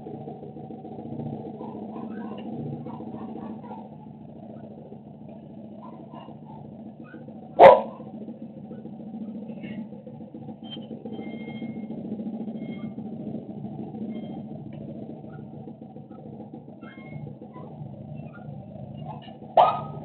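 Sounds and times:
steady low hum: 0.0s - 20.0s
dog bark: 2.9s - 3.9s, 7.6s - 8.1s, 19.1s - 20.0s.

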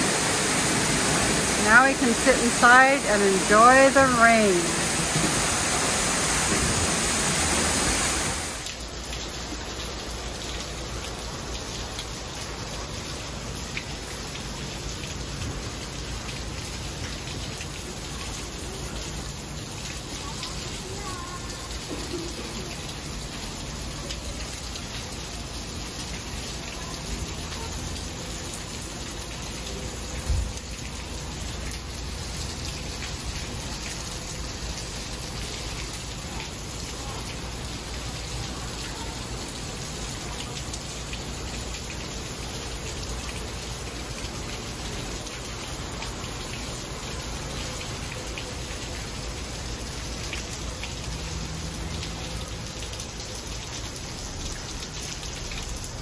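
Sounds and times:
heavy rain pouring: 0.0s - 56.0s.

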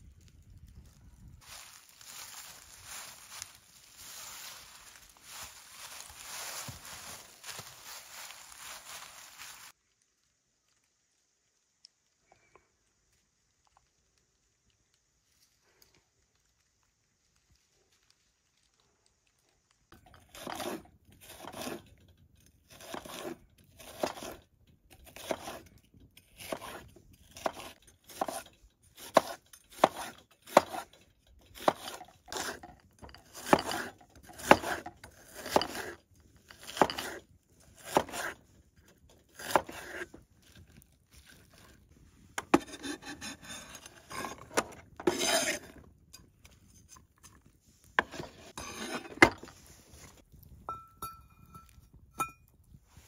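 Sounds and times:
scraping and rustling of slices: 1.4s - 9.7s, 20.0s - 21.9s, 22.7s - 50.2s
knife slicing onion on board: 20.3s - 21.8s, 22.7s - 24.4s, 25.0s - 28.4s, 29.0s - 30.9s, 31.6s - 32.6s, 33.3s - 36.0s, 36.6s - 37.2s, 37.8s - 38.4s, 39.3s - 40.1s, 42.4s - 44.4s.

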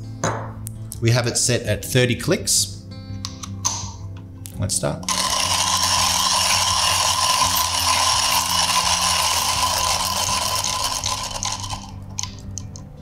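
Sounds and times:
hand coffee grinder grating: 5.1s - 12.4s.

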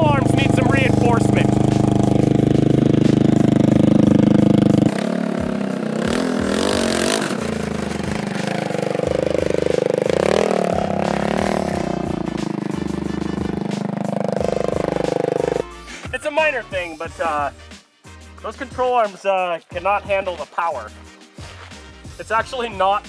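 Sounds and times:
go-kart engine idling and revving: 0.0s - 15.6s.

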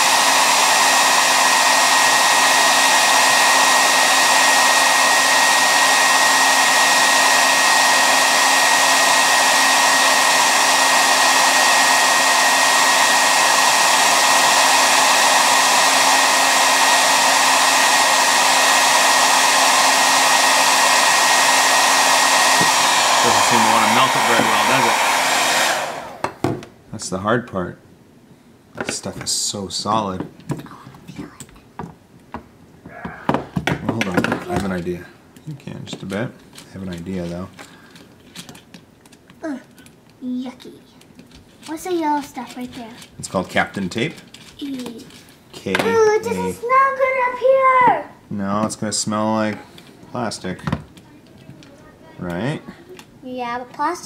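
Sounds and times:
hair dryer blowing: 0.0s - 26.6s, 32.9s - 36.1s, 45.6s - 51.0s.

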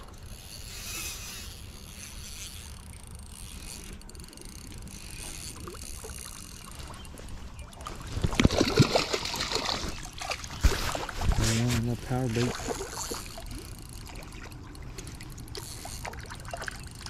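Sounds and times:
wind rumbling on microphone: 0.0s - 13.6s
fish splashing at water surface: 7.8s - 11.8s.

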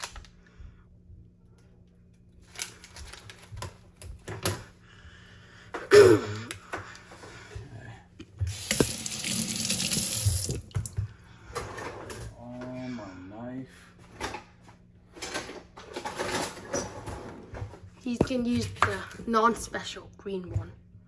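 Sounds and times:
tap water running into sink: 8.5s - 11.1s.

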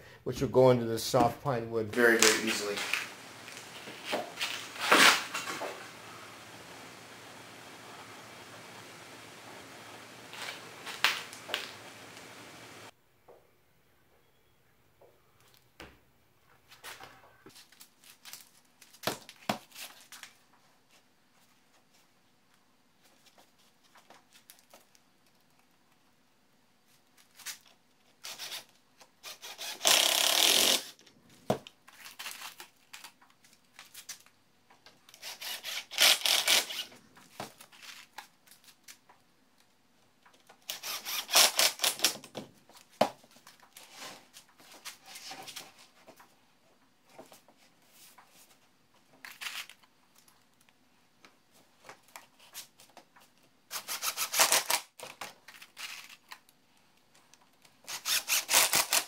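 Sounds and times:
screws and boards handled: 2.0s - 12.8s
impact driver driving screws: 29.2s - 30.9s, 35.2s - 36.9s, 40.7s - 42.2s, 57.9s - 59.0s.

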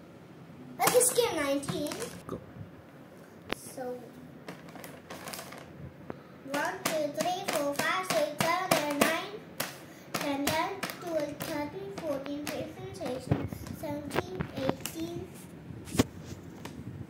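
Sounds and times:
tapping crinkly chip packets: 0.8s - 2.2s, 4.4s - 5.8s, 6.5s - 15.0s
child chanting a rhyme: 6.5s - 9.4s, 10.2s - 15.3s.

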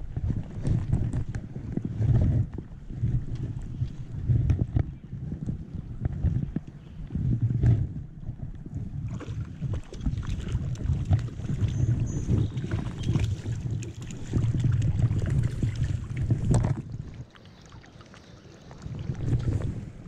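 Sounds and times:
wind buffeting microphone: 0.0s - 20.0s
stream water splashing: 9.0s - 20.0s.

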